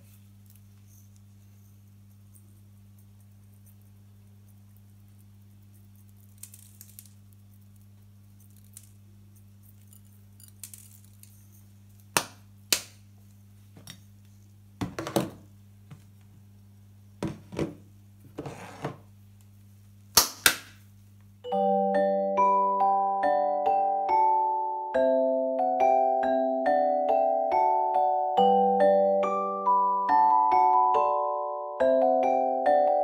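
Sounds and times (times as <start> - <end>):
utensils clinking on a hard table: 9.7 - 11.4.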